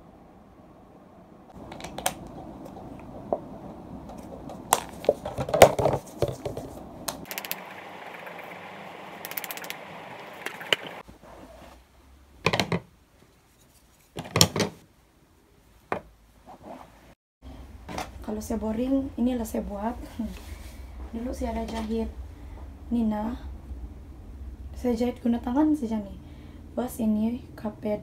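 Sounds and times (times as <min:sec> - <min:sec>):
soft hiss: 0:06.7 - 0:11.2.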